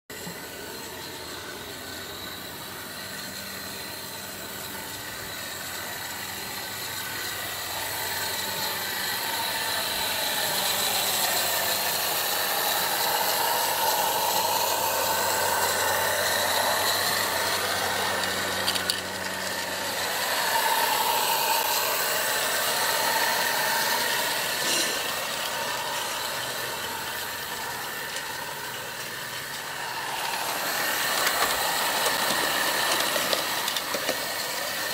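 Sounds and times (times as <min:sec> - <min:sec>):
model steam train rattling on rails: 0:00.1 - 0:34.9.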